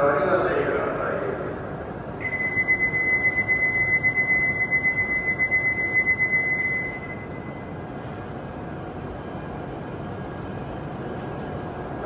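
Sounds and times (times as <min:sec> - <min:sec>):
platform departure bell ringing: 0:02.2 - 0:07.9.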